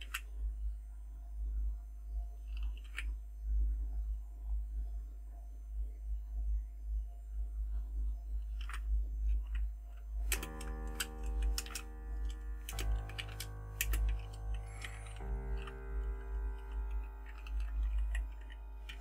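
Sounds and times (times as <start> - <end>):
keyboard keys clicking: 0.0 - 0.4, 2.5 - 3.2, 8.4 - 19.0
low electrical hum: 0.0 - 19.0
sustained chord-like music tones: 9.1 - 19.0.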